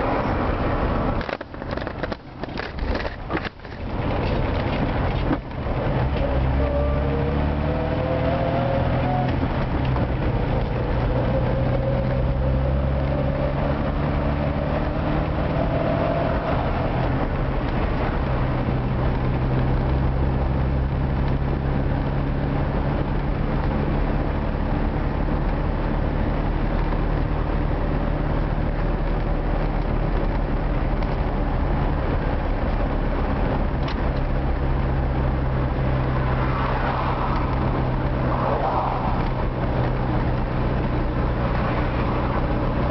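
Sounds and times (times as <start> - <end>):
car engine and road noise drone: 0.0 - 42.9
rising whine: 33.6 - 42.9.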